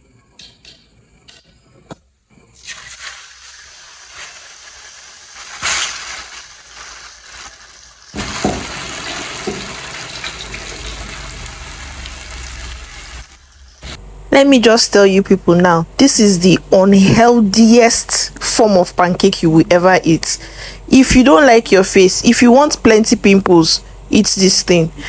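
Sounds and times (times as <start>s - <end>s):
batter sizzling in hot oil: 2.6s - 14.0s.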